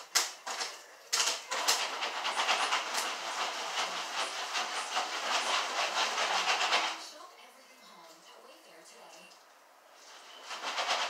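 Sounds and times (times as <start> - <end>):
popcorn popping: 0.0 - 7.1
pan rattling: 0.0 - 7.2, 10.1 - 11.0.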